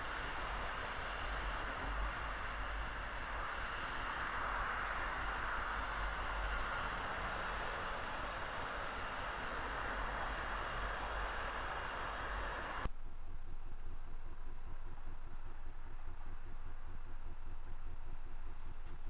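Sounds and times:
train rushing rail noise: 0:00.0 - 0:12.9
high-pitched wheel squeal: 0:01.2 - 0:12.9.

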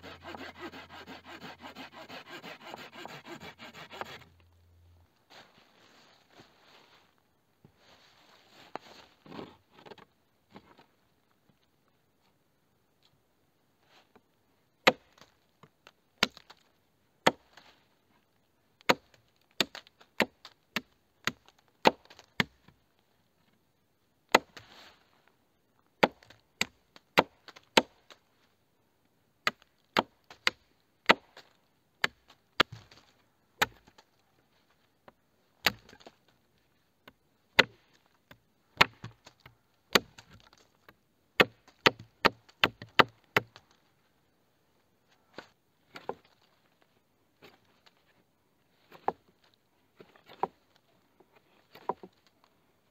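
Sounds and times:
blade chopping into wood: 0:38.8 - 0:40.3.

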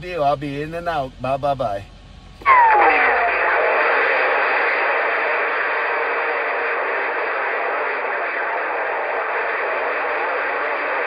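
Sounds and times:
radio static hiss: 0:02.4 - 0:11.0.

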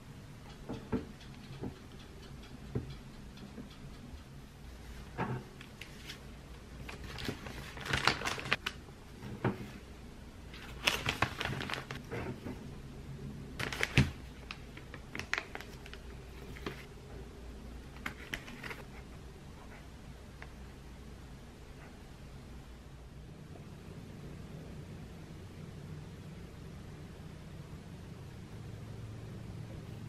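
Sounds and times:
cookies tapping on wire rack: 0:00.5 - 0:04.2.

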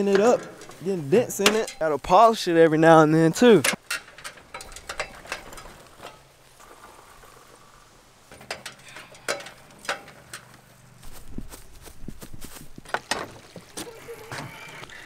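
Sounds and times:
metallic clanks on ramp: 0:00.0 - 0:02.3, 0:03.6 - 0:06.8, 0:08.3 - 0:10.5.

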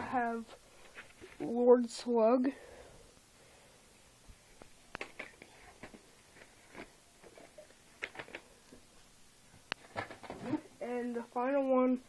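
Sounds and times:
plastic cases clicking and rustling: 0:05.0 - 0:08.5.

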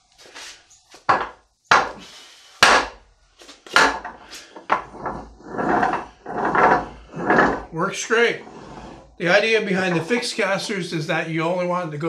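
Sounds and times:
wooden dolly knocking on concrete: 0:01.0 - 0:02.0, 0:03.7 - 0:07.7.

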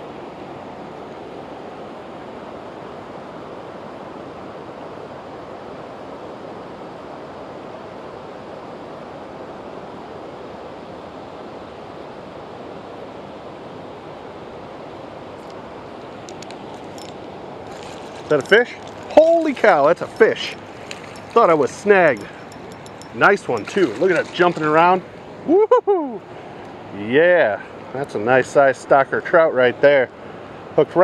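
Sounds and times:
river current rushing: 0:14.3 - 0:29.3.

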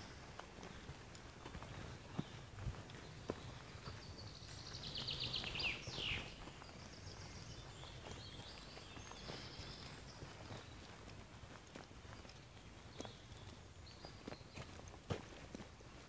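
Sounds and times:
songbird trilling: 0:04.6 - 0:06.4.

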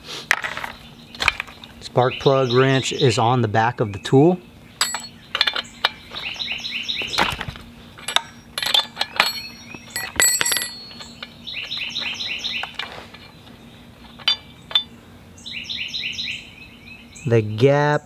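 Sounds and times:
songbird chirping: 0:00.6 - 0:18.0
wrench clinking on metal: 0:04.8 - 0:06.3, 0:08.0 - 0:13.3, 0:14.1 - 0:15.0.

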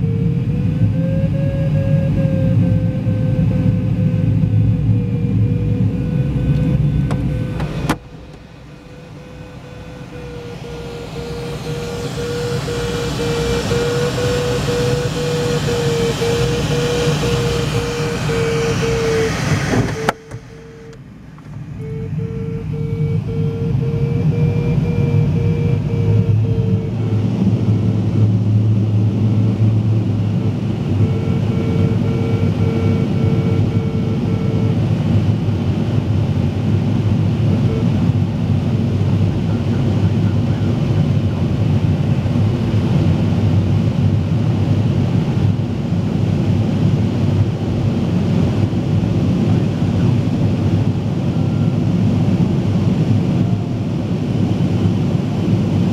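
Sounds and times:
variometer beeping: 0:00.0 - 0:28.4, 0:30.3 - 0:35.0
airflow rushing around canopy: 0:00.0 - 0:55.9.

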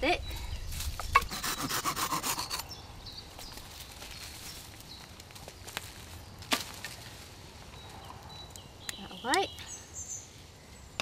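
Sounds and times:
footsteps on dry leaves: 0:03.3 - 0:07.6.

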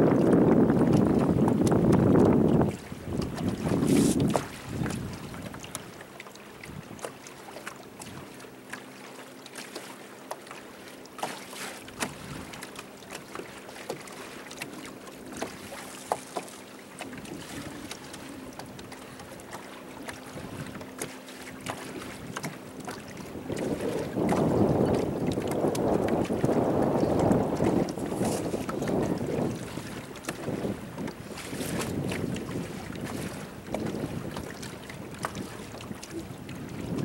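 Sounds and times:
wind buffeting microphone: 0:00.0 - 0:06.0, 0:06.6 - 0:07.1, 0:17.0 - 0:21.0, 0:21.6 - 0:37.0
water lapping against boat hull: 0:00.0 - 0:37.0.

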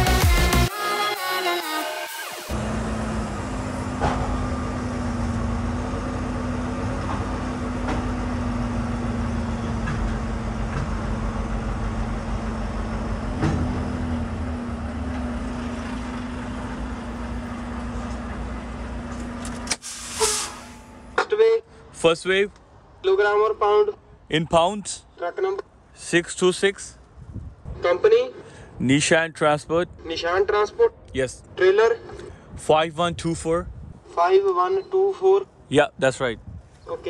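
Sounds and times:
diesel truck engine idling: 0:02.5 - 0:21.2.

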